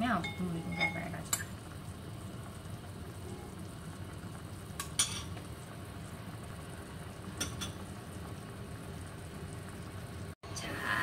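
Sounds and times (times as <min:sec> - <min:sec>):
metal spoon clinking on pot: 0:00.2 - 0:01.5.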